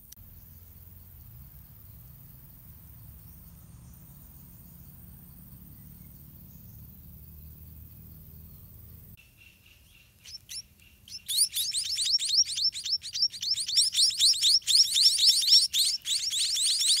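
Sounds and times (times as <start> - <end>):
nestlings begging with high chirps: 3.1 - 17.0.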